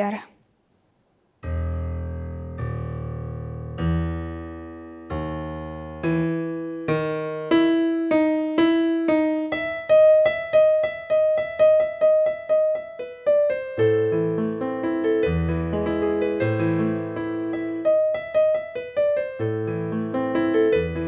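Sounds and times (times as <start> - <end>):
solo piano: 1.4 - 21.0.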